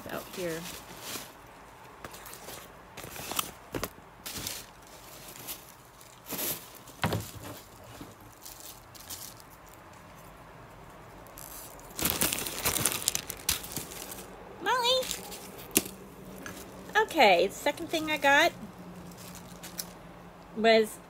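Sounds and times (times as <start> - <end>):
packaging rustling: 0.1 - 9.9, 11.2 - 14.4
plastic wrapper crinkling: 11.2 - 14.4.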